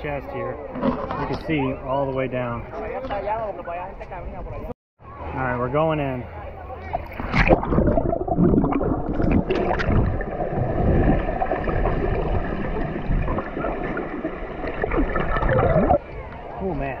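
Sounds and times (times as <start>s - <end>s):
dull underwater rush: 6.8s - 17.0s
water splash: 7.0s - 16.1s
bubbles gurgling underwater: 7.1s - 16.0s.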